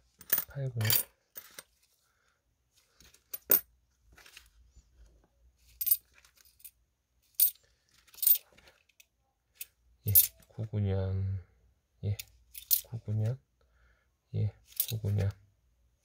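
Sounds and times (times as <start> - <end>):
coins clinking: 0.2 - 1.6, 7.4 - 8.4, 10.1 - 10.4, 12.6 - 12.9.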